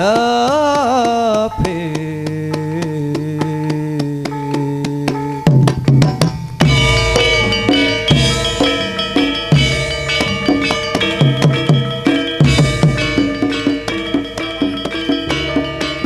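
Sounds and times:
hand drum strokes: 0.0 - 16.0
ringing metal gamelan tones: 0.0 - 16.0
long held note: 6.6 - 16.0.

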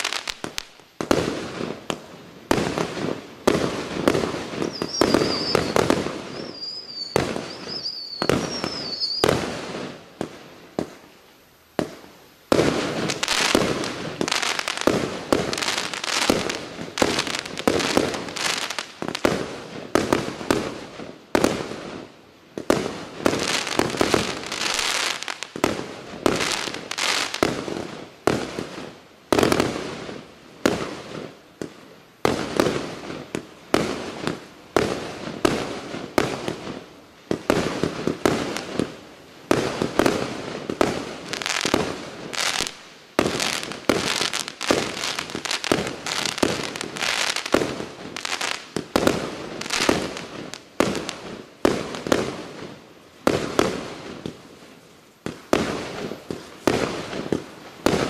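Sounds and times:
fireworks stars bursting: 0.0 - 58.0
high wavering whistle: 4.6 - 9.3.

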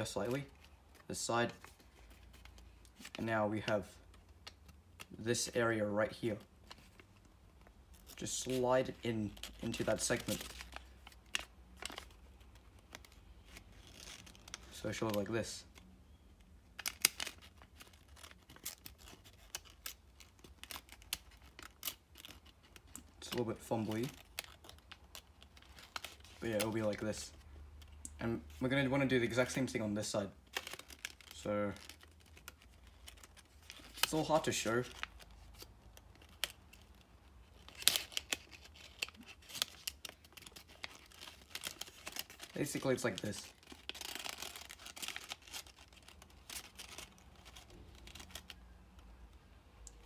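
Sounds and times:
paper rustling and crinkling: 6.2 - 15.9, 16.8 - 48.7.

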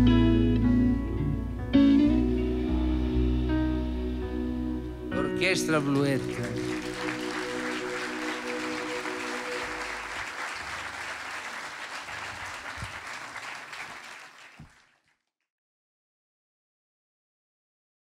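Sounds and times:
audience applauding: 5.2 - 15.2.

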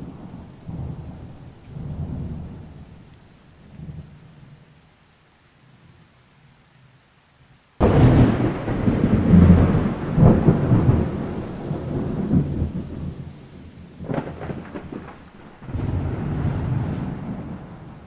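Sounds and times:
thunder clap and rumble: 0.0 - 3.0, 7.8 - 18.0.

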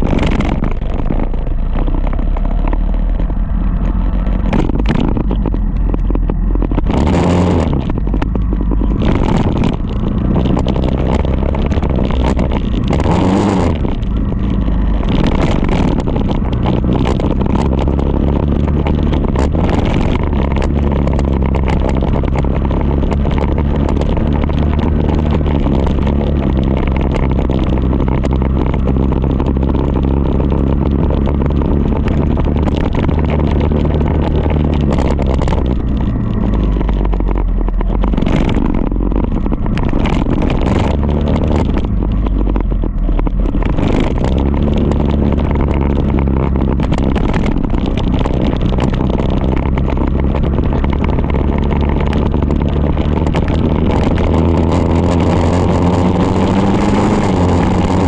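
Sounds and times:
rushing noise: 0.0 - 27.8
motorcycle engine running: 0.0 - 58.0.

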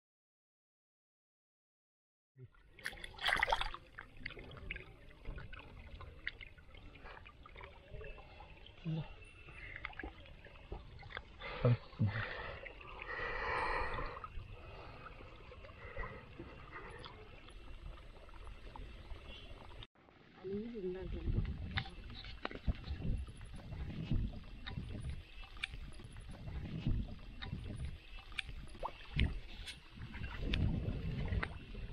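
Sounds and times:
hands splashing in water: 2.8 - 3.8.

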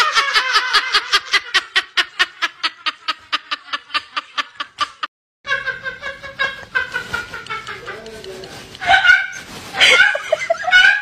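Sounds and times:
person speaking: 7.6 - 9.0
person giggling: 9.8 - 11.0.

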